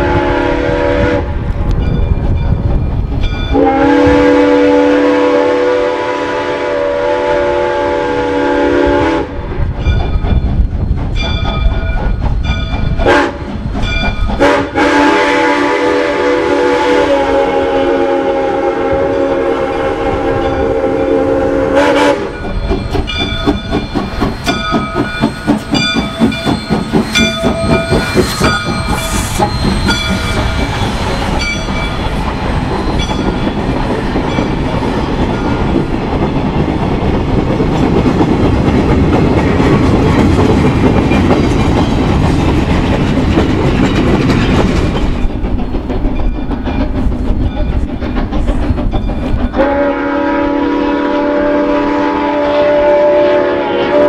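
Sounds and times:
steam whistle blasts: 0.0 - 1.3, 3.5 - 9.4, 13.0 - 13.4, 14.4 - 22.5, 49.5 - 54.0
steam locomotive exhaust chuffing: 0.0 - 54.0.

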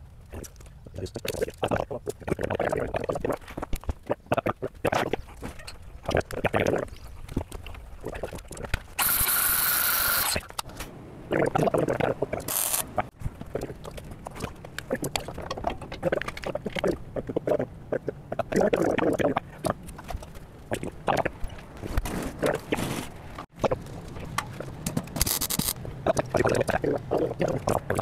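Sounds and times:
jack ratcheting clicks: 9.0 - 10.7, 12.4 - 13.0, 25.1 - 25.8.

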